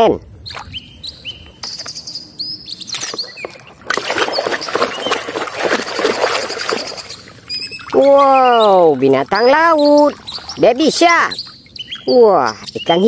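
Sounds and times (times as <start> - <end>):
birds chirping: 0.0 - 13.0
hand splashing in water: 3.8 - 7.2.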